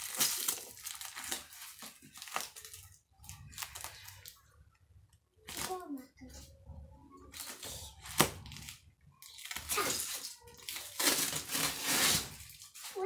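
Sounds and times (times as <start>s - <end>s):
packaging and fabric rustling: 0.0s - 4.5s, 7.3s - 13.0s.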